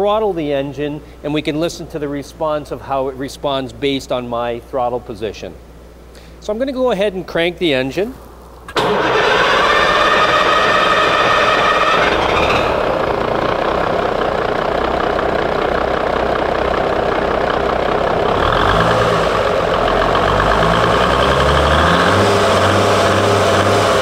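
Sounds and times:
diesel engine clattering: 8.7s - 24.0s.

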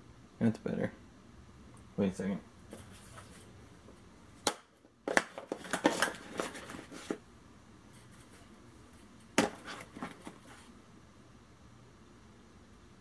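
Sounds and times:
cardboard boxes knocking and rattling: 9.4s - 10.6s.

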